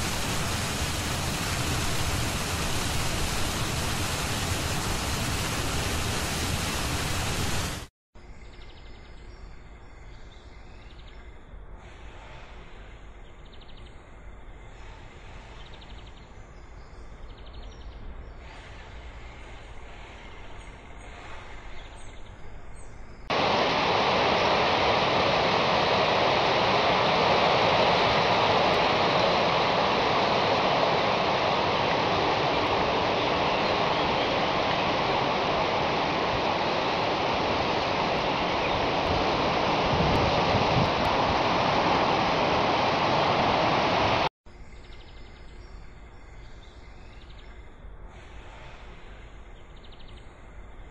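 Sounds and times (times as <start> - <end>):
rush of running water: 0.0 - 7.9, 23.3 - 44.3
faint chirping: 25.6 - 39.6.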